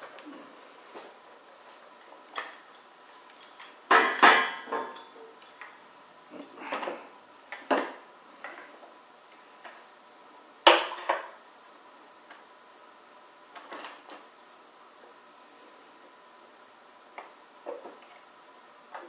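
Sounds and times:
steel parts clinking and clanking: 2.3s - 5.8s.

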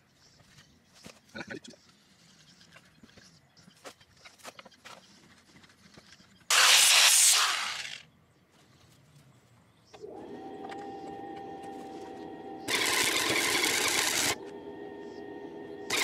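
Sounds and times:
angle grinder on metal: 6.5s - 8.0s, 12.6s - 14.4s.

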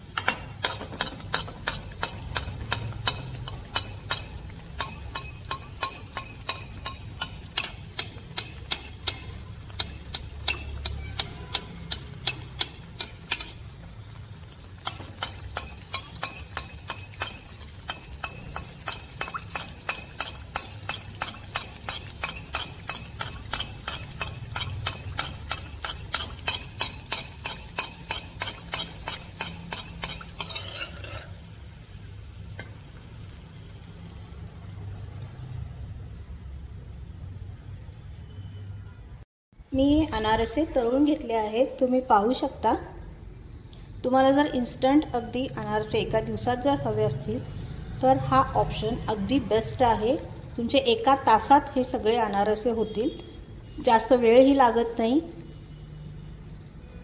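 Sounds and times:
spoon clinking on metal pan: 0.2s - 13.7s, 14.8s - 31.4s.

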